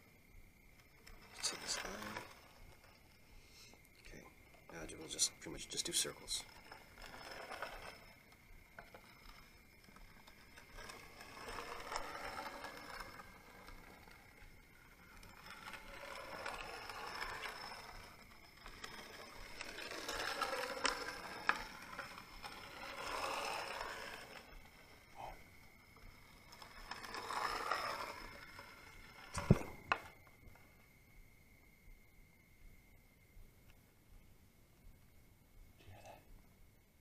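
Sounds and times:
glass scraping over board: 0.8s - 3.2s, 5.6s - 30.2s.

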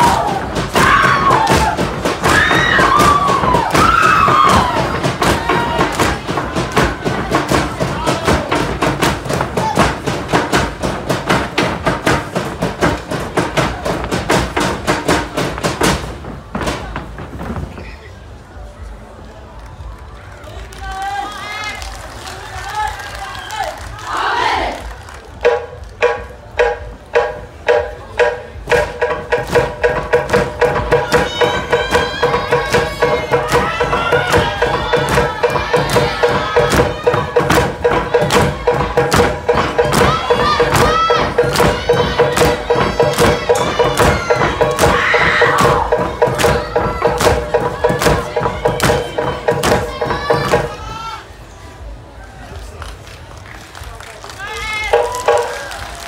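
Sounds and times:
drums playing a fast beat: 0.0s - 17.5s, 25.4s - 51.1s, 54.8s - 55.9s.

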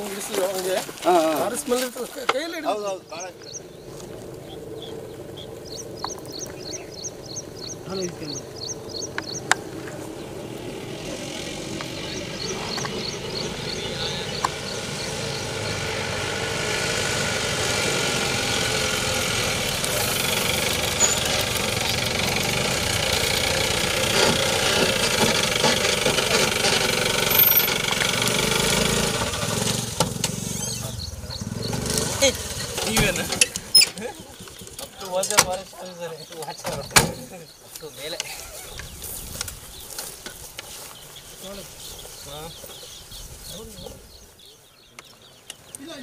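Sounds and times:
vehicle engine running: 2.8s - 35.3s.

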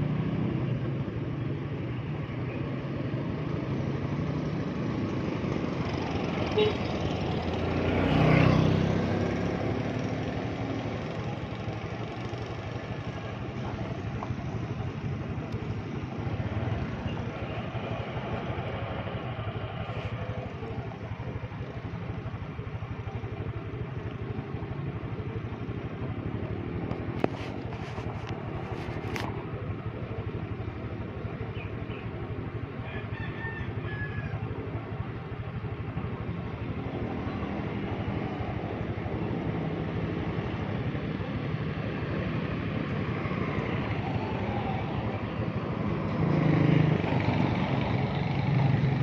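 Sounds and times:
motorcycle engine running: 0.0s - 49.0s
road noise: 0.0s - 49.0s
vehicle engine passing: 3.3s - 21.0s, 42.0s - 49.0s.

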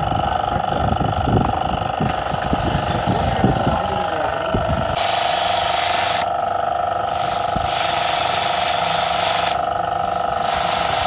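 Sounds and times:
power ratchet spinning bolts: 4.7s - 11.0s.

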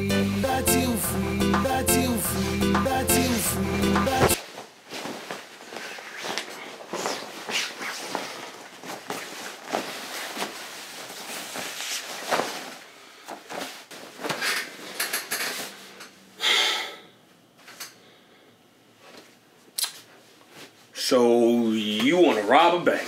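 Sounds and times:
bedsheets rustling: 3.8s - 16.0s.

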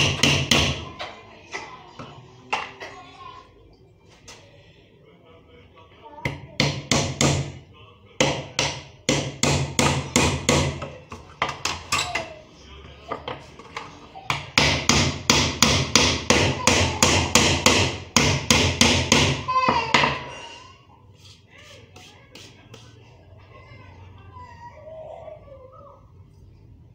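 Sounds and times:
hammer striking wood: 0.0s - 0.9s, 6.3s - 7.6s, 8.2s - 11.0s, 14.3s - 20.2s.

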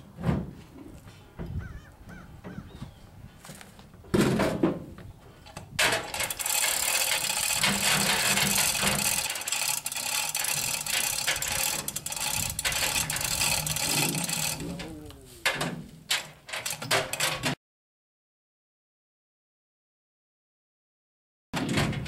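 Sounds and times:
chain rattling: 5.8s - 17.5s
ratchet clicking: 5.9s - 14.7s.

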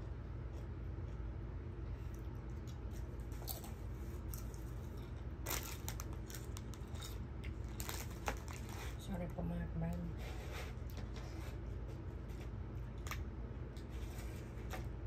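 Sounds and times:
low steady hum: 0.0s - 15.0s
crisp eating crunches: 2.0s - 9.1s.

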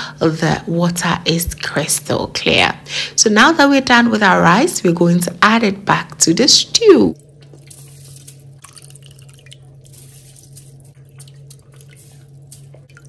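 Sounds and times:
steady low hum: 0.0s - 13.0s
wet squelching of rice mixing: 7.2s - 13.0s.

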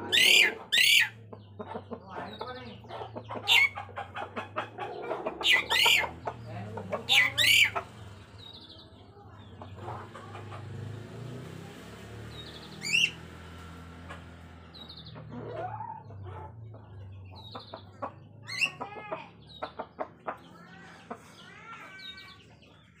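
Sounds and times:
high bird chirps: 0.0s - 1.6s, 7.0s - 9.5s, 12.3s - 13.3s
rooster clucking: 0.0s - 8.4s, 9.4s - 11.0s, 15.1s - 22.6s.

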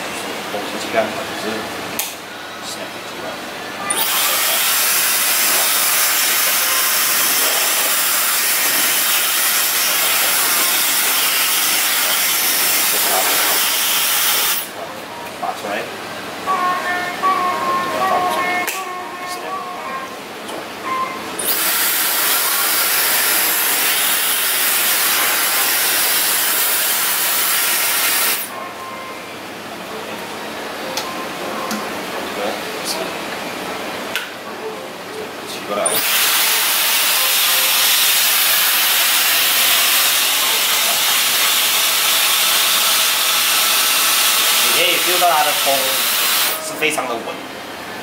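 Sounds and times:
hair dryer running: 3.9s - 14.7s, 21.4s - 28.5s, 35.9s - 47.1s.

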